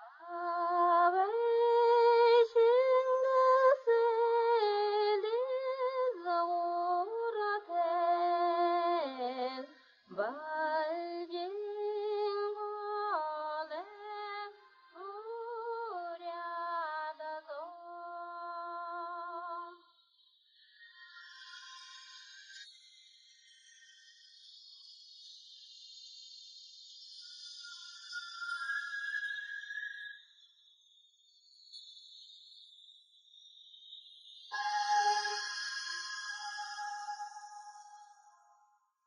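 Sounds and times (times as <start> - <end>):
woman singing unaccompanied: 0.0 - 19.8.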